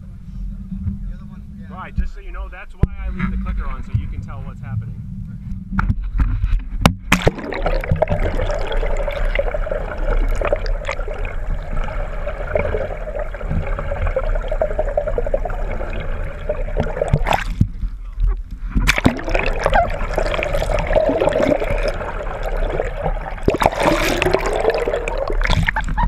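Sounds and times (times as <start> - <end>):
muffled underwater water rushing: 0.0 - 26.0
knocks and splashes: 6.8 - 18.0, 18.7 - 26.0.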